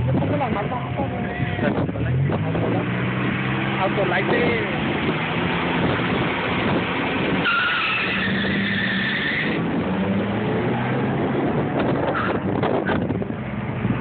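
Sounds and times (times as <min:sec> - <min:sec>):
drag racing cars revving: 0:00.0 - 0:14.0
high squeal: 0:07.4 - 0:09.6.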